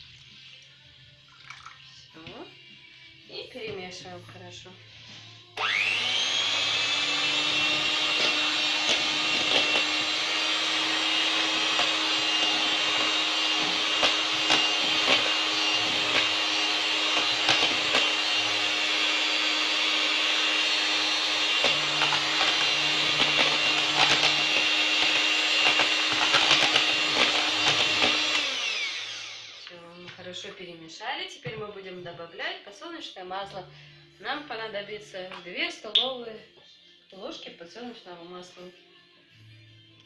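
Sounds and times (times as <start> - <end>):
electric hand mixer whirring: 5.6 - 29.8.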